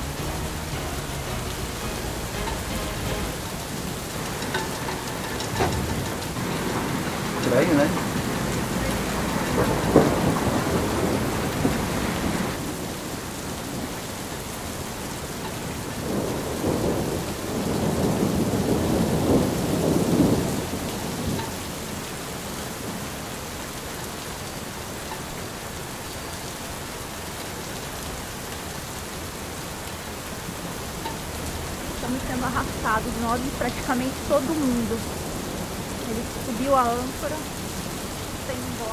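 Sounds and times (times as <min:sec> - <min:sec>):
rolling thunder: 0:00.0 - 0:23.2
steady rain: 0:00.0 - 0:38.9.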